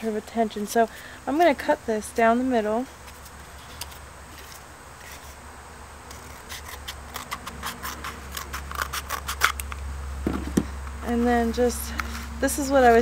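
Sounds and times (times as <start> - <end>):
scissors cutting cardboard: 6.1 - 9.7.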